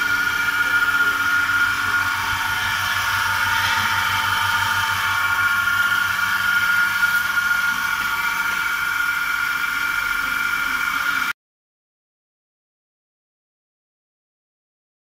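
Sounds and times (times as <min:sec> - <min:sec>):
vacuum pump running: 0:00.0 - 0:11.3.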